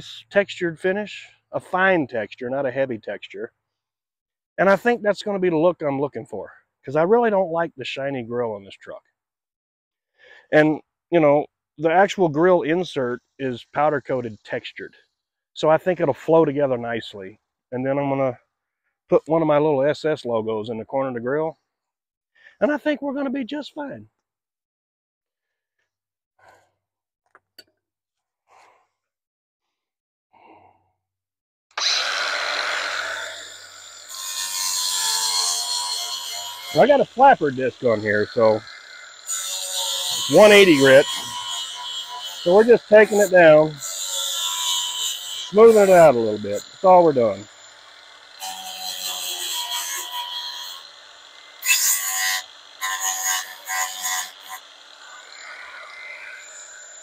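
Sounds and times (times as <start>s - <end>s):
faint breath: 26.4s - 26.8s, 28.5s - 29.1s, 30.4s - 30.9s
angle grinder sanding metal: 31.8s - 57.0s.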